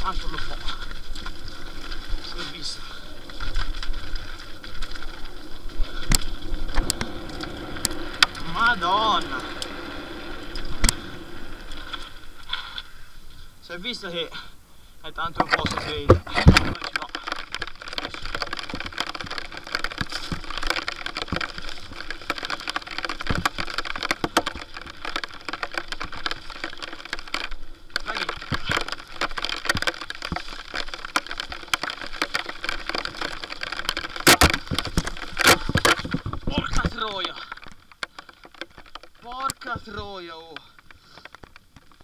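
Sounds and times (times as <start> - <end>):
mountain bike rattling: 0.0 - 14.3, 15.2 - 42.0
hard bike impacts: 15.4 - 42.0.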